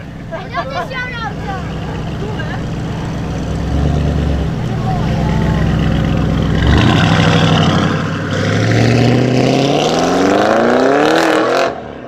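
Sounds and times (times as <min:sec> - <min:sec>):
car engine accelerating hard: 0:01.2 - 0:12.0.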